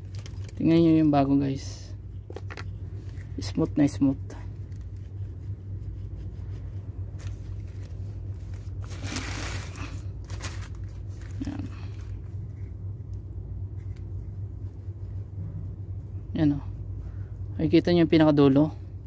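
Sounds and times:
cable rustling on plastic bag: 0:00.0 - 0:01.1, 0:07.0 - 0:12.6
low hum: 0:00.0 - 0:19.0.

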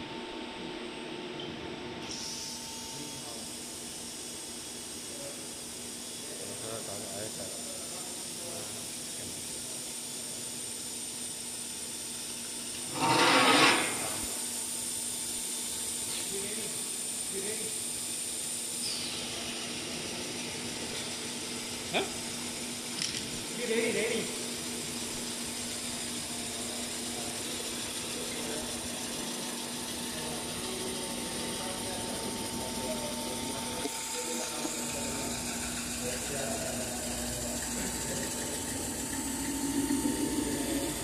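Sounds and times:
rasping rush of suction loader: 0:12.9 - 0:14.3, 0:33.5 - 0:41.0
machine humming: 0:16.3 - 0:41.0.

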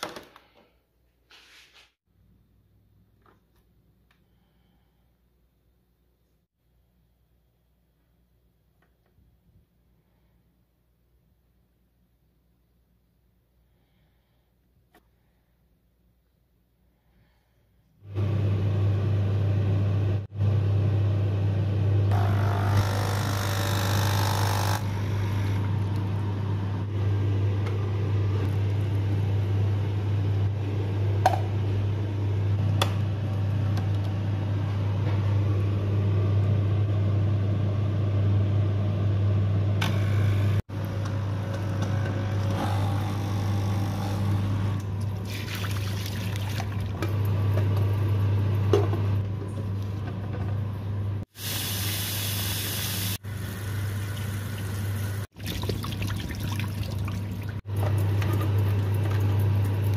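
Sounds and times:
coffee machine pump humming: 0:21.8 - 0:39.0, 0:39.6 - 0:59.9
tap water splashing into a sink: 0:45.2 - 0:46.9, 0:55.3 - 0:58.4
liquid trickling into a container: 0:45.2 - 0:47.0, 0:55.3 - 0:57.6.

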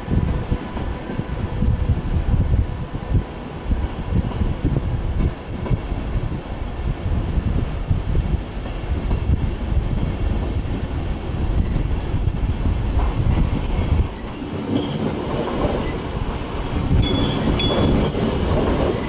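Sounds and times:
trains rumbling across bridge: 0:00.0 - 0:19.0
wheels clattering over rails: 0:16.9 - 0:19.0
faint train whine: 0:17.0 - 0:19.0.

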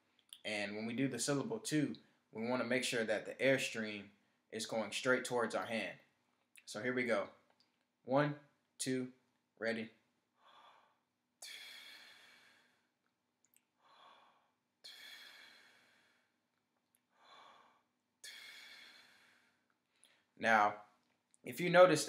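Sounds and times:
soft inhale: 0:10.4 - 0:13.0, 0:13.8 - 0:16.4, 0:17.1 - 0:20.3
sharp tongued exhale: 0:10.5 - 0:12.9, 0:13.8 - 0:16.4, 0:17.2 - 0:19.6.

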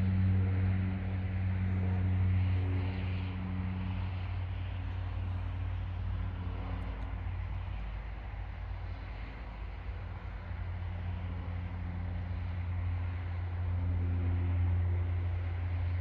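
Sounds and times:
jet engines idling: 0:00.0 - 0:16.0
low steady hum: 0:00.0 - 0:16.0.

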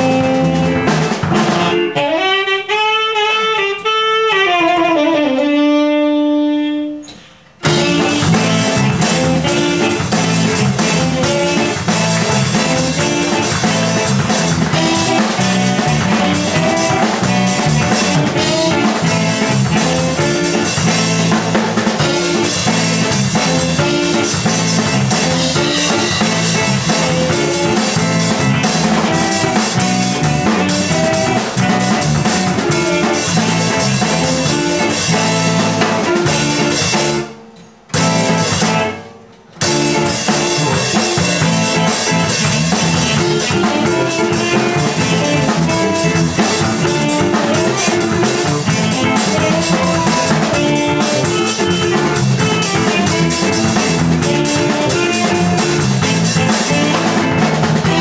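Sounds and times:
lone saxophone line: 0:00.0 - 0:37.4, 0:38.0 - 0:58.0
jazz band playing: 0:00.0 - 0:58.0.

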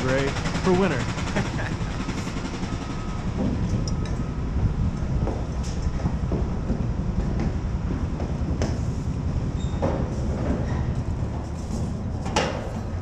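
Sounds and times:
low rumbling noise: 0:00.0 - 0:13.0
footsteps on wooden deck: 0:05.1 - 0:09.1.

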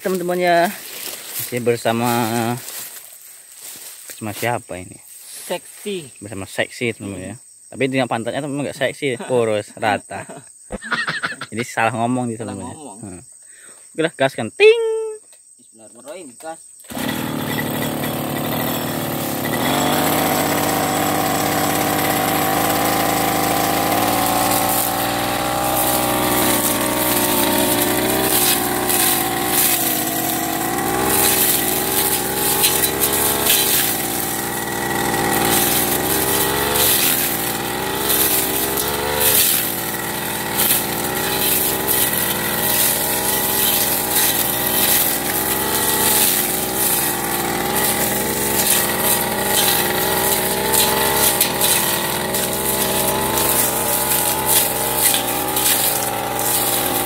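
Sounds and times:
blade crackling through grass: 0:00.0 - 0:04.5, 0:16.9 - 0:57.0
brush cutter engine revving: 0:00.0 - 0:04.5, 0:16.9 - 0:57.0.

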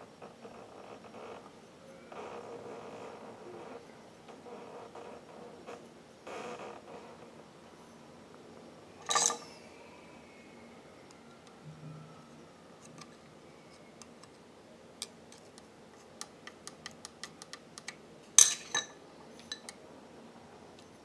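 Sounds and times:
metallic clatter: 0:09.1 - 0:09.4.

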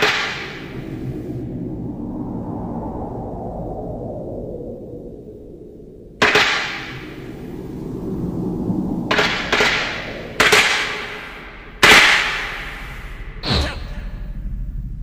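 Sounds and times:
low rumble: 0:00.0 - 0:15.0
sharp hissing hits: 0:09.1 - 0:14.5.

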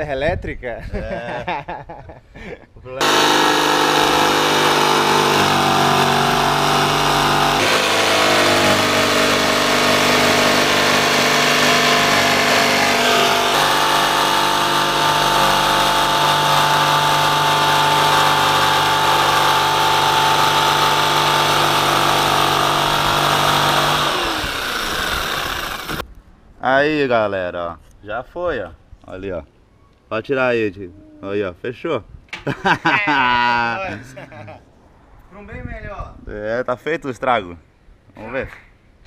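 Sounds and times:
jigsaw cutting sheet metal: 0:03.0 - 0:26.0.

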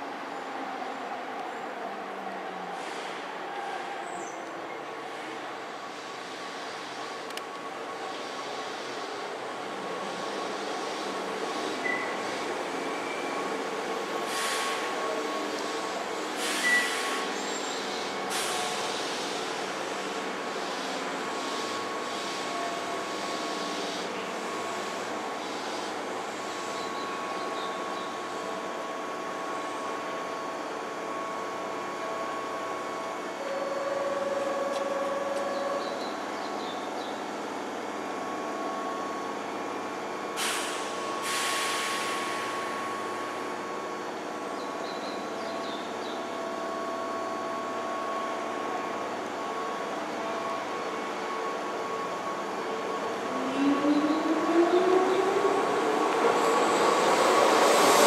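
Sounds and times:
air hissing from brakes: 0:02.8 - 0:03.9, 0:14.2 - 0:27.0, 0:40.4 - 0:43.3
train equipment humming: 0:04.4 - 0:58.0.

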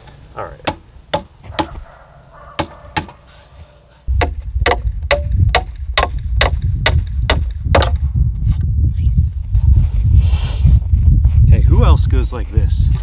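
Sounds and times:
wind rumble on microphone: 0:04.1 - 0:13.0.

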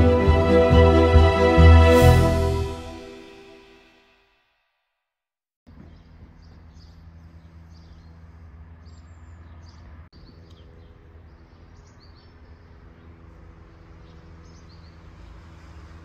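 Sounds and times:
small birds chirping: 0:05.7 - 0:15.8.

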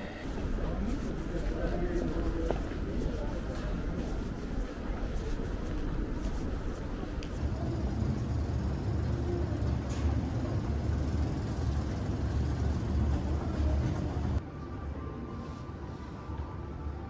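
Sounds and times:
escalator rumbling: 0:00.0 - 0:14.4.

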